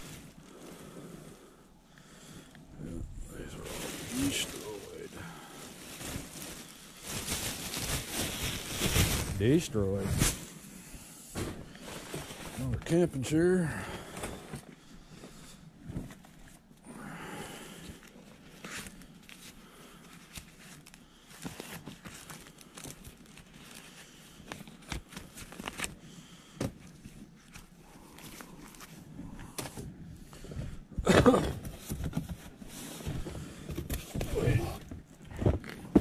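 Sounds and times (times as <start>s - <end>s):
bag rustling and crinkling: 0.0s - 1.0s, 3.0s - 10.7s, 11.3s - 13.0s, 18.1s - 26.0s, 31.5s - 36.0s.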